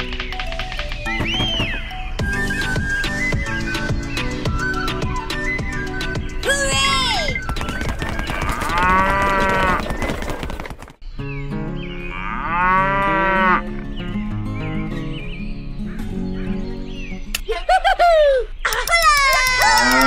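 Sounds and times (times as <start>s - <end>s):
background music: 0.0s - 10.0s
cow mooing: 8.4s - 9.8s, 12.1s - 13.7s.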